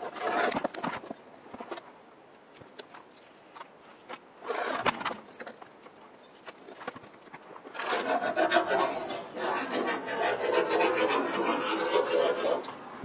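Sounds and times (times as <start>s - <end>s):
rough scraping and rubbing: 0.0s - 1.8s, 3.9s - 5.2s, 6.8s - 12.8s.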